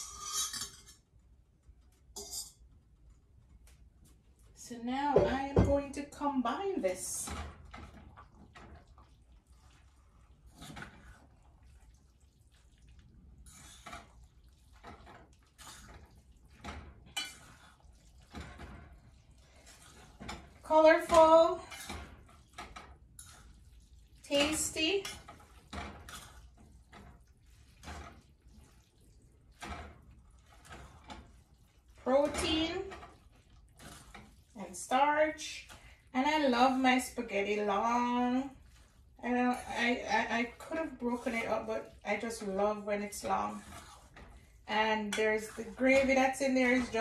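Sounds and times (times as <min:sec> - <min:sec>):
fork scraping metal pot: 0:00.0 - 0:01.0, 0:02.2 - 0:02.6, 0:13.4 - 0:18.6, 0:19.6 - 0:23.6, 0:24.3 - 0:28.9, 0:29.6 - 0:36.4, 0:39.3 - 0:47.0
wet spaghetti swishing: 0:07.6 - 0:47.0.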